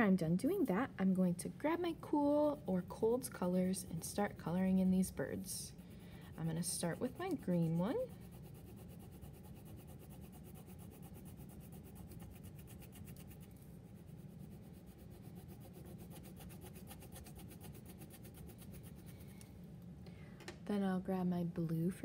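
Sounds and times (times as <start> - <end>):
crayon scratching on paper: 4.2 - 19.3.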